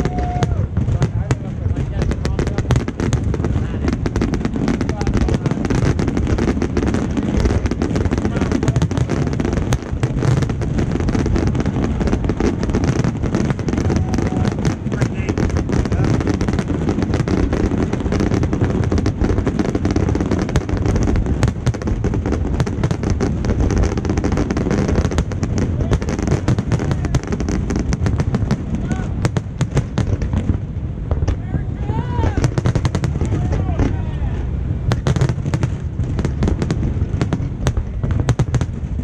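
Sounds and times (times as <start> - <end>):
people's voices: 0.0 - 19.1, 23.6 - 29.3, 31.2 - 35.3
fireworks bangs and crackling: 0.0 - 39.0.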